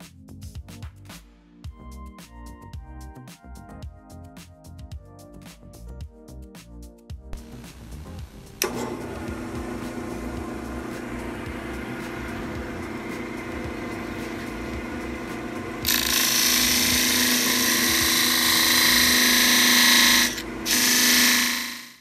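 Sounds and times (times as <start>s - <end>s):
lathe motor hum: 7.7s - 22.0s
wood sanding hiss: 9.3s - 22.0s.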